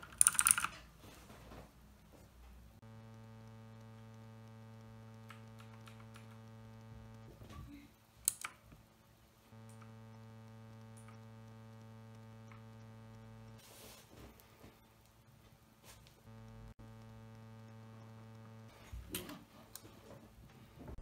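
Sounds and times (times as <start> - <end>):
mechanical keyboard clicks: 0.0 - 0.8, 5.2 - 6.4, 8.3 - 8.6
electrical mains hum: 0.0 - 21.0
faint ticks: 2.8 - 8.6, 9.5 - 13.6, 16.0 - 18.9.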